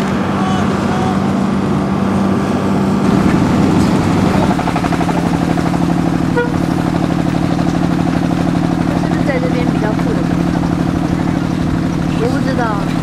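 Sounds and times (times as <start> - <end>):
vehicle engine running: 0.0 - 13.0
horn toot: 6.3 - 6.8.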